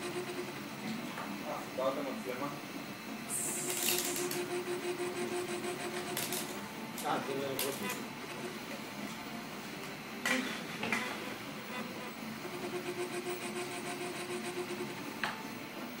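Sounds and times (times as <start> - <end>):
printer stepper motors whirring: 0.0 - 16.0
steady hum: 0.0 - 16.0.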